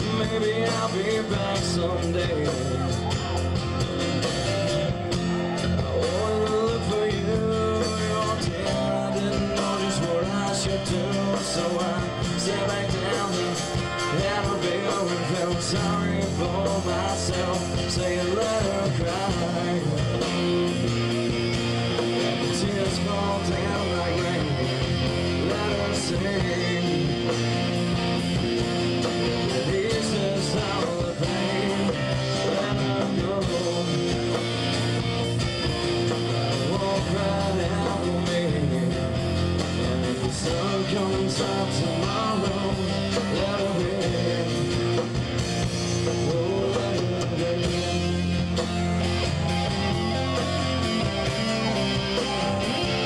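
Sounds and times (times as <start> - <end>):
bass guitar: 0.0 - 53.0
electric guitar: 0.0 - 53.0.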